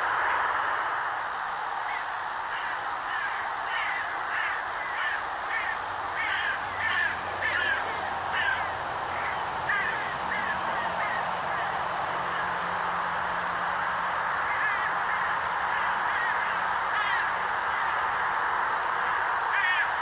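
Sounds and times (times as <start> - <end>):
steady hiss: 0.0 - 20.0
crow cawing: 1.9 - 12.6, 14.4 - 18.2, 19.0 - 20.0.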